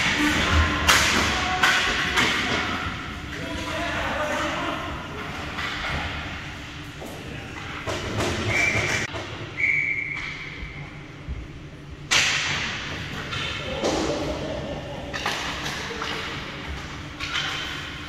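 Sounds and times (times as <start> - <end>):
ice rink noise: 0.0 - 11.1, 12.1 - 18.0
referee whistle blasts: 9.6 - 10.4.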